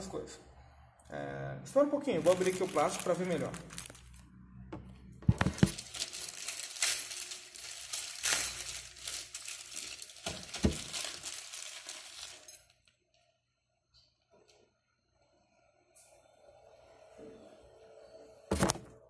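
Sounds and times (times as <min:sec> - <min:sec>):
plastic bag crinkling: 0:02.1 - 0:04.2, 0:05.3 - 0:12.8.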